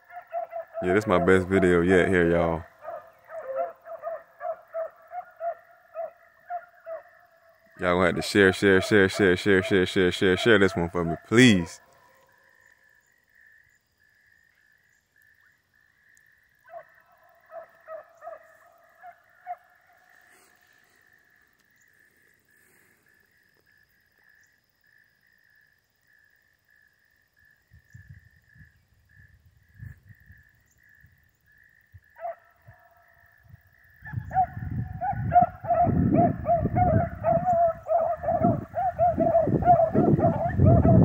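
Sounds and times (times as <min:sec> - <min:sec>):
distant dogs baying: 0:00.0 - 0:13.5, 0:16.5 - 0:23.3, 0:32.1 - 0:41.0.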